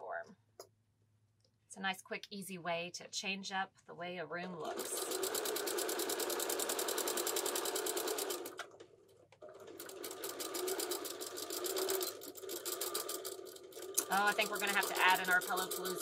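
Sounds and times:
sewing machine stitching: 4.6s - 16.0s.

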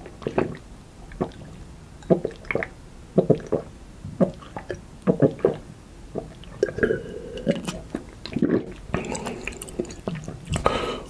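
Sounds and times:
wet mouth clicks and smacks: 7.4s - 10.8s.

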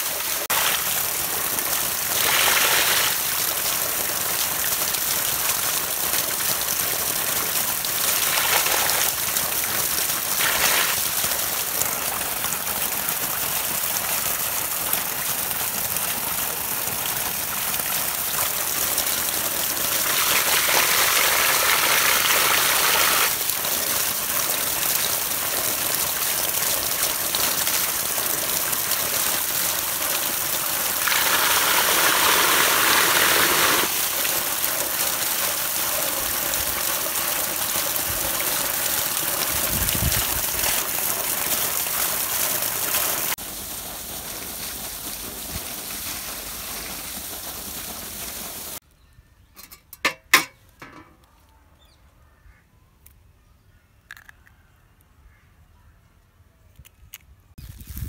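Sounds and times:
water gushing into a tank: 0.0s - 48.8s.

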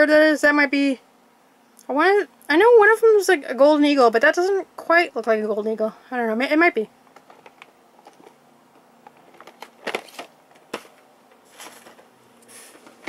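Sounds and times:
cardboard and plastic packaging rustling: 7.0s - 13.0s.

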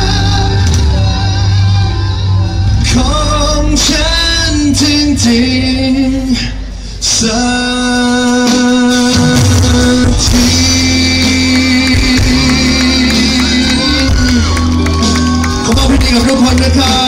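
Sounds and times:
live band playing pop-rock: 0.0s - 17.0s
man singing long notes: 0.0s - 17.0s.

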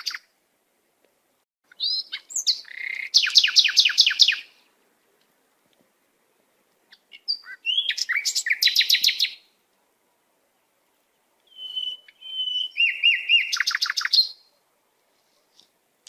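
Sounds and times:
songbird singing with trill: 1.7s - 4.6s, 6.9s - 9.5s, 10.9s - 14.6s.

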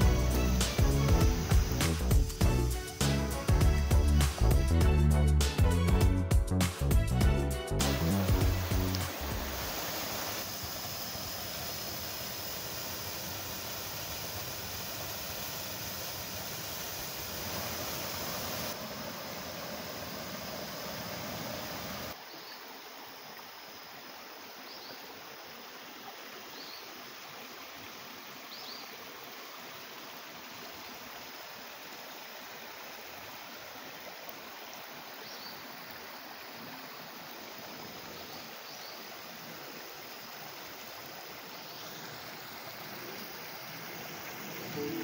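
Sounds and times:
stream flowing over rocks: 0.0s - 3.5s, 7.8s - 45.0s.

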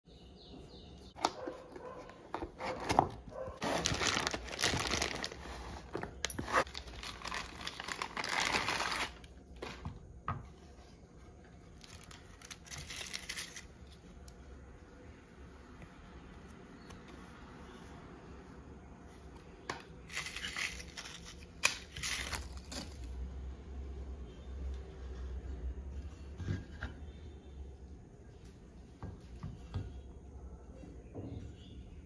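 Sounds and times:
plastic and paper crinkling: 2.3s - 9.9s, 11.5s - 14.4s, 20.0s - 23.2s.

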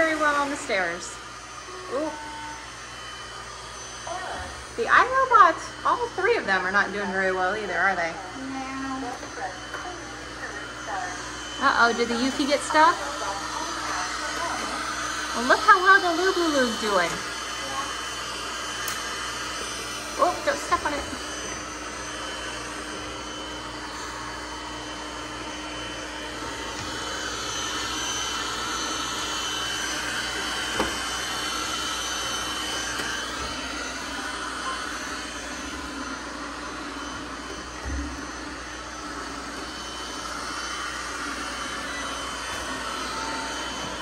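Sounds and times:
robot vacuums whirring: 0.0s - 44.0s.

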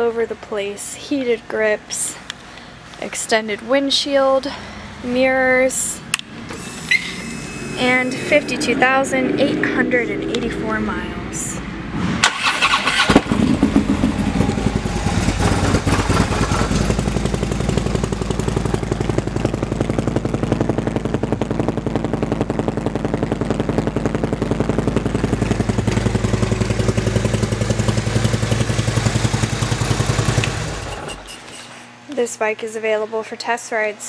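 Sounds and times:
motorcycle engine idling: 12.5s - 31.4s.

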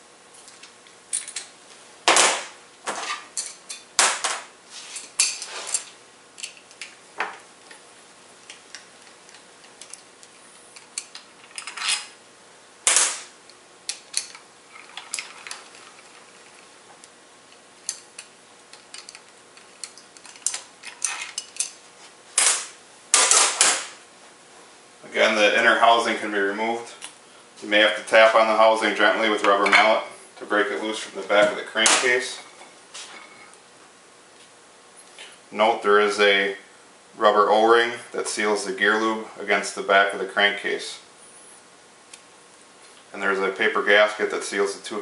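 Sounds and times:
metal tools clinking: 10.8s - 12.2s, 17.8s - 21.8s.

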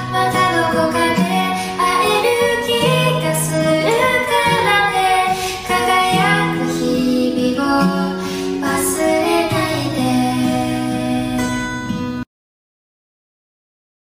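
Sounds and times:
high voice singing: 0.0s - 11.7s
soft instrumental backing: 0.0s - 12.2s.

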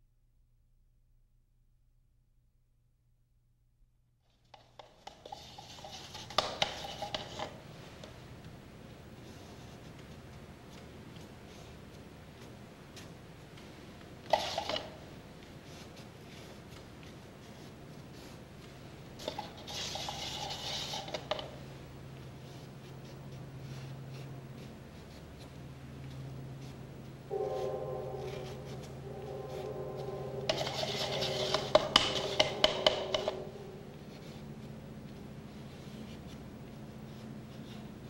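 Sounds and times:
paintbrush scratching on canvas: 5.0s - 7.6s, 19.2s - 21.6s, 26.5s - 38.0s
low hum: 21.6s - 37.5s
steady multi-pitch tone: 27.3s - 34.7s.

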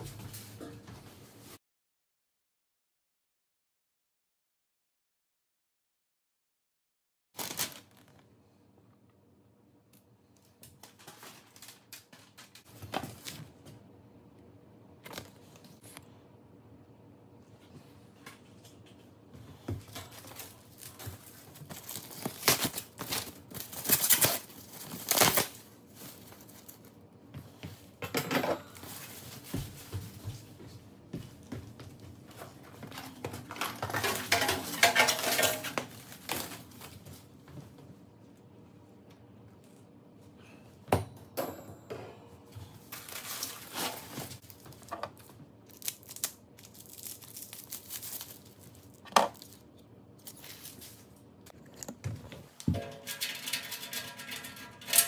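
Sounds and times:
paper rustling and crinkling: 7.4s - 8.6s, 10.5s - 13.5s, 19.5s - 27.0s, 32.3s - 37.3s, 42.8s - 51.3s.

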